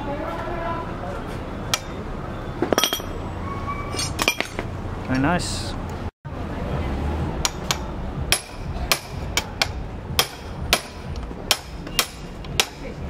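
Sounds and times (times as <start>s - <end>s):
hammer striking metal: 7.4s - 12.9s.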